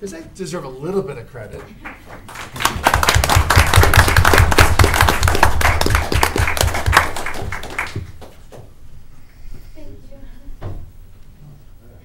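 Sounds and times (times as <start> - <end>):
hand clapping: 1.6 - 8.7.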